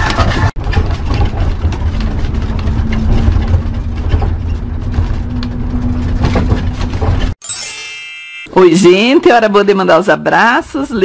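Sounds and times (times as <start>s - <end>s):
engine and road rumble: 0.0s - 7.4s
knocks and rattles from rough road: 0.0s - 7.4s.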